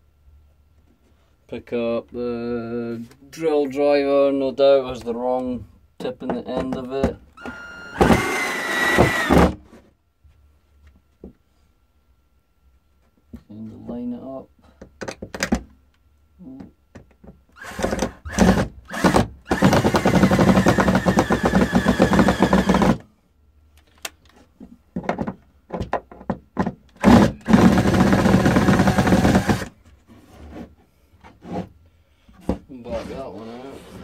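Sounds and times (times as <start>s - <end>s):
cordless drill driving screws: 7.4s - 9.6s, 17.6s - 23.0s, 27.0s - 29.7s.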